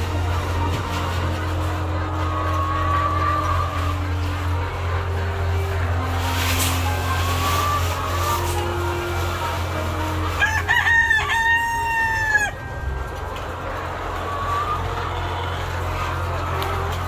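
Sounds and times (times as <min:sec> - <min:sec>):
rooster crowing: 0:10.4 - 0:12.6.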